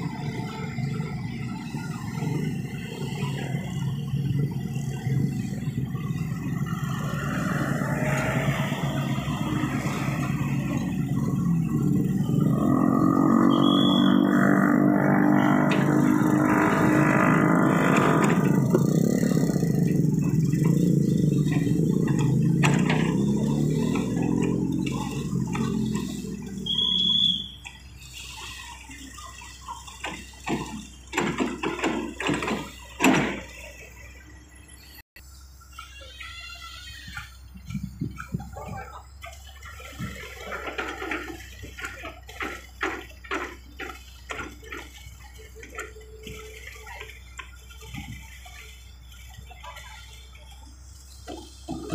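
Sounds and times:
diesel engines running: 0:00.0 - 0:51.9
high squeal: 0:06.4 - 0:31.0.

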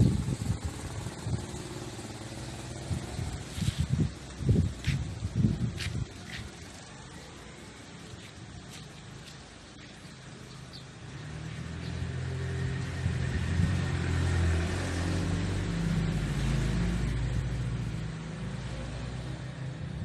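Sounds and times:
vehicle engine passing by: 0:00.0 - 0:06.5, 0:10.5 - 0:20.0.

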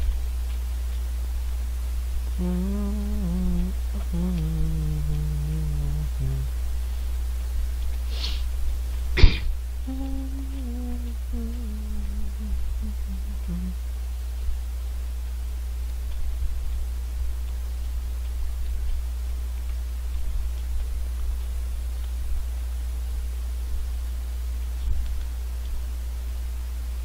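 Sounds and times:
low electrical hum: 0:00.0 - 0:27.0
man humming a tune: 0:02.3 - 0:06.7, 0:09.2 - 0:13.9
sharp knock: 0:09.2 - 0:09.5.

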